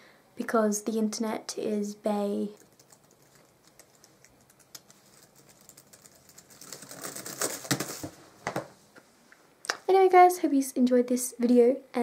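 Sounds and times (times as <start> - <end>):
laptop keyboard typing: 2.6 - 8.0.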